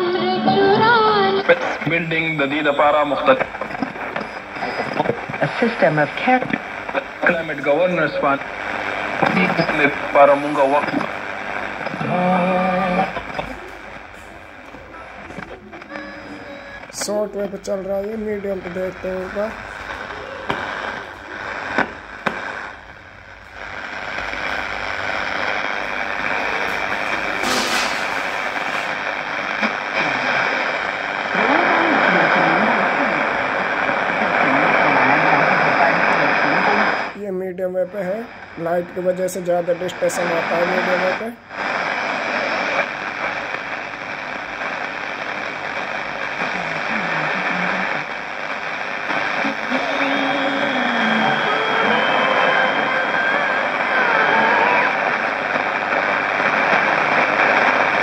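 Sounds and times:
radio whistles: 0:00.0 - 0:37.2, 0:39.8 - 0:58.0
radio static hiss: 0:00.0 - 0:58.0
faint tones shifting in pitch: 0:49.5 - 0:55.1.

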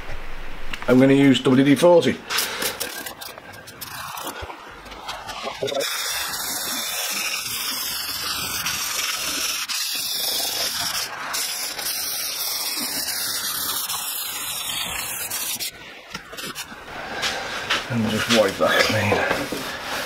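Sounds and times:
sandpaper scraping metal: 0:02.3 - 0:17.4.

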